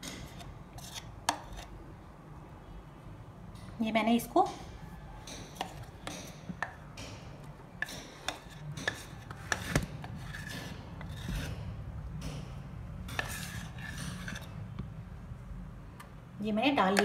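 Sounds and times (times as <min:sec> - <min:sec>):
metal spoon scraping steel container: 0:13.1 - 0:14.6.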